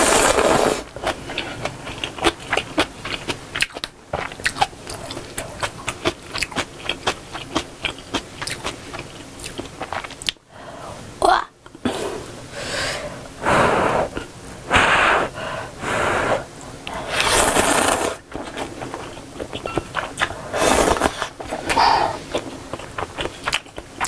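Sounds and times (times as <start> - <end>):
noodles slurped: 0.0 - 2.6, 16.9 - 24.0
wet chewing clicks: 1.0 - 10.4, 16.8 - 24.0.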